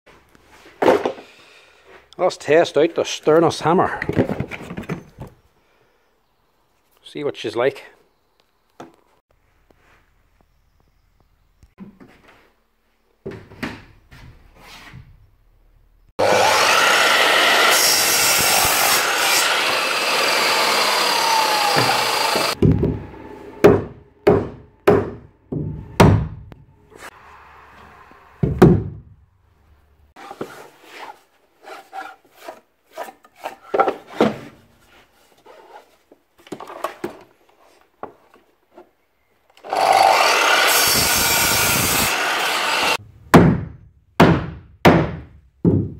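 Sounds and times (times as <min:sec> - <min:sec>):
mitre saw cutting: 0:16.2 - 0:23.6, 0:39.6 - 0:43.0
power saw cutting timber: 0:16.2 - 0:23.7, 0:39.6 - 0:43.0
hammer driving nails: 0:21.0 - 0:23.0.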